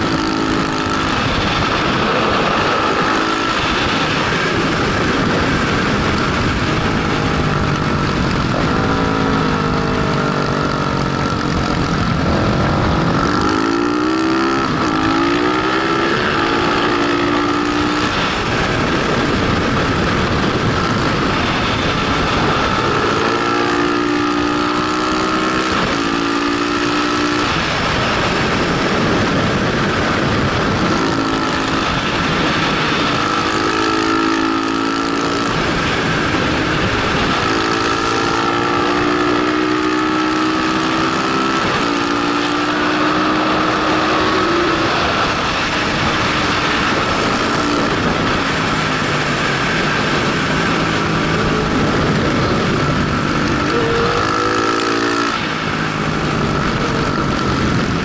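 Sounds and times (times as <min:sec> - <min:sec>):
motorcycle engine accelerating: 0:00.0 - 0:58.0
wind on microphone: 0:00.0 - 0:58.0.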